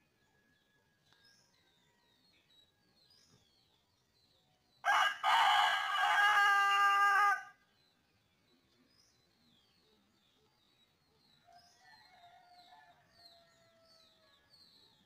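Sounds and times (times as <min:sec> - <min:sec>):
rooster crowing: 0:04.8 - 0:07.5.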